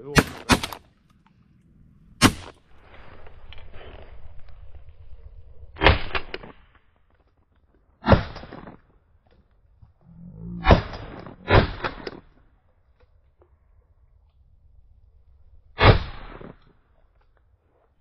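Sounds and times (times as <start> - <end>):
shotgun shots: 0.0 - 0.9, 2.2 - 2.7, 8.0 - 8.7, 10.6 - 12.3, 15.8 - 16.6.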